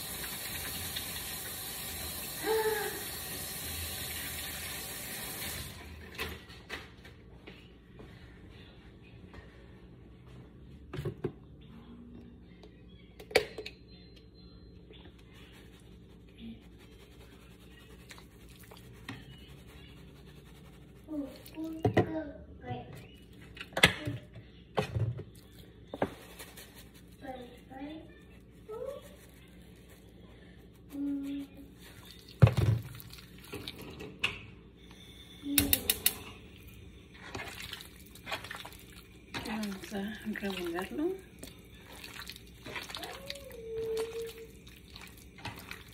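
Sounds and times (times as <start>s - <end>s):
wet squishing of raw meat: 37.2s - 45.9s.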